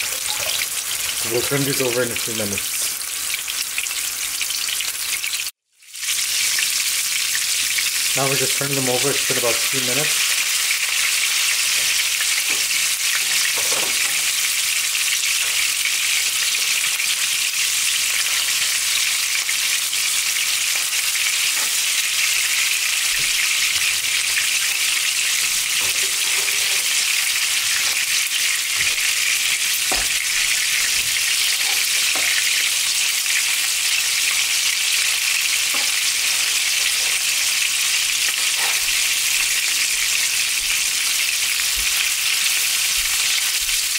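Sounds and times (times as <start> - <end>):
kebabs sizzling in oil: 0.0 - 43.9.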